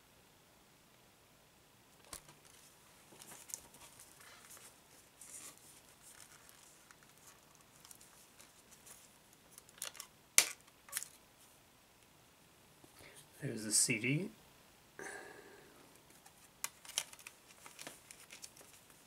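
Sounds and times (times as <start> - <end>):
shrink wrap crinkling and tearing: 2.4 - 11.2, 16.2 - 19.0.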